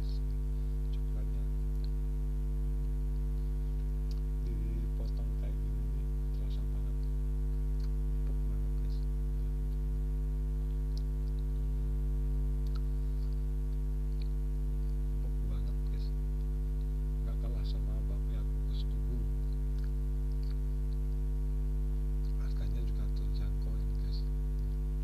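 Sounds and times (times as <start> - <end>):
electrical mains hum: 0.0 - 25.0
wet mouth clicks from chewing: 12.6 - 15.0, 19.4 - 21.2.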